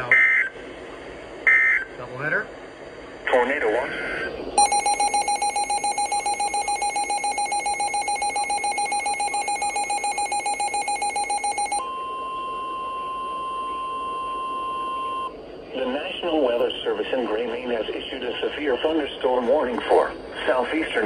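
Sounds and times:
rapid electronic beeping: 0:04.6 - 0:11.8
steady alarm tone: 0:04.6 - 0:15.3.

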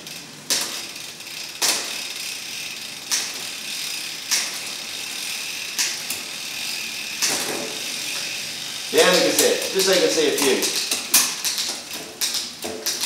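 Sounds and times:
bicycle chain running over cassette: 0:00.0 - 0:13.0.

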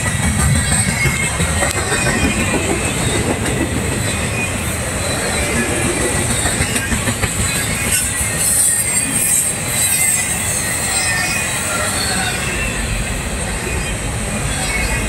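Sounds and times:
wheel clacks: 0:00.0 - 0:04.0
train wheels rumbling on rails: 0:00.0 - 0:15.0
high wheel squeal: 0:00.3 - 0:15.0.

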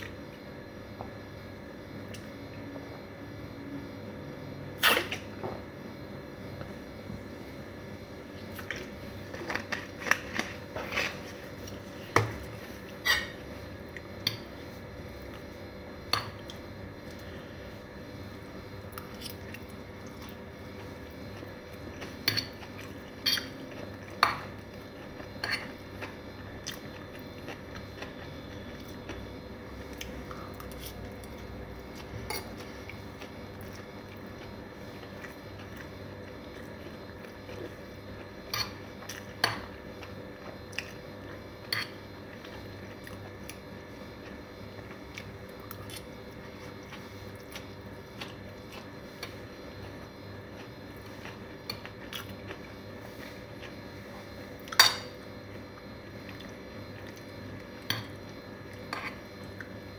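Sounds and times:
steady low hum: 0:00.0 - 0:59.9
quiet chewing: 0:18.9 - 0:54.8.

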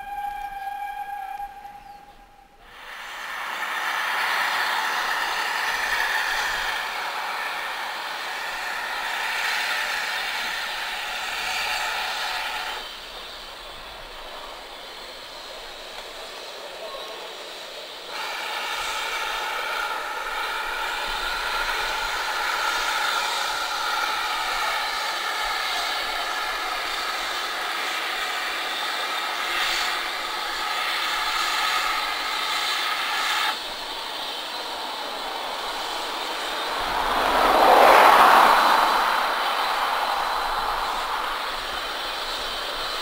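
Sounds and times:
steam train running past: 0:00.0 - 0:43.0
loud rushing: 0:33.5 - 0:43.0.

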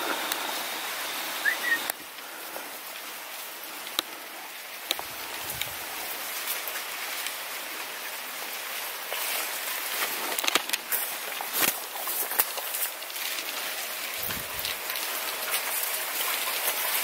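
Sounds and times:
corn leaves rustling: 0:00.0 - 0:17.0
stalks clicking and snapping: 0:10.3 - 0:10.9.

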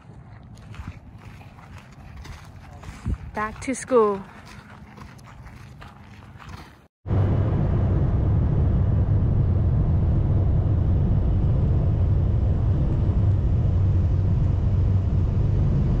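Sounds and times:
jet engine rumble in cabin: 0:07.1 - 0:16.0.

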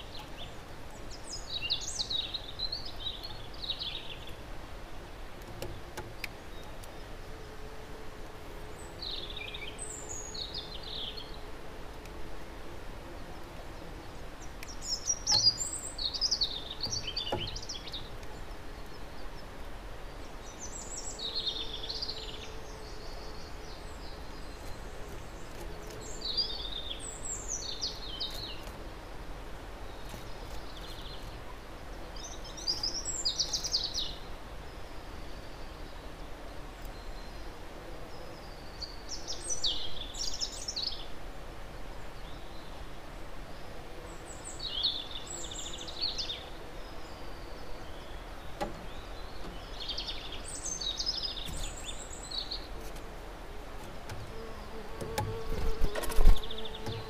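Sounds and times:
outdoor background noise: 0:00.0 - 0:57.0
songbird singing: 0:00.0 - 0:57.0.

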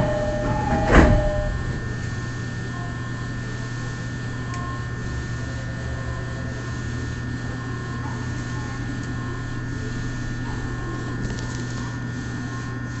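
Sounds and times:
air-conditioning fan noise: 0:00.0 - 0:13.0
steady electrical hum: 0:00.0 - 0:13.0.

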